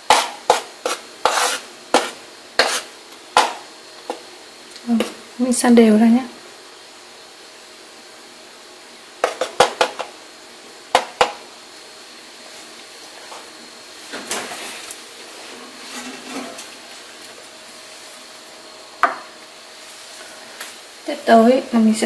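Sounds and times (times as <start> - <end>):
spoon scraping through flour: 0.0 - 4.2, 14.5 - 16.7.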